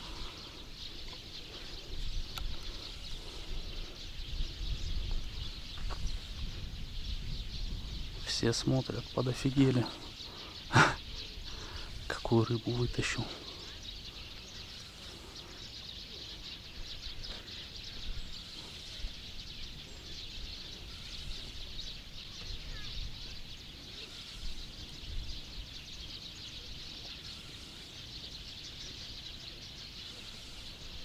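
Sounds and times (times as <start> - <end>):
wind rumble on microphone: 0.0 - 9.4, 16.8 - 26.7
small birds chirping: 0.0 - 31.0.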